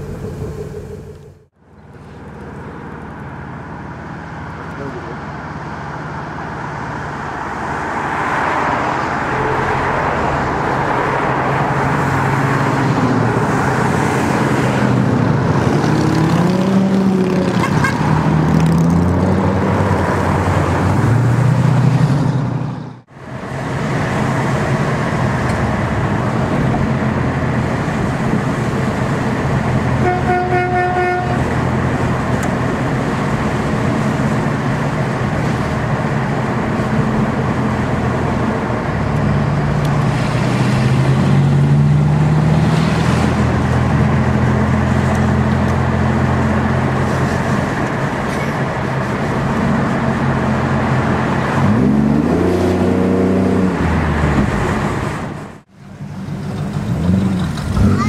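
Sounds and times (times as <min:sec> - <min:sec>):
car engines revving: 0:00.0 - 0:58.0
road noise: 0:00.0 - 0:58.0
car horn toot: 0:17.6 - 0:18.1, 0:30.0 - 0:31.4.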